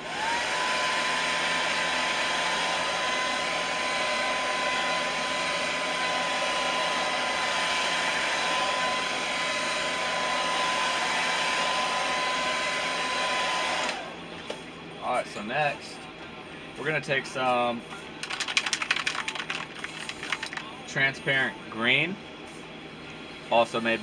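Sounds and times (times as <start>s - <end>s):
hair dryer blowing: 0.0s - 14.2s.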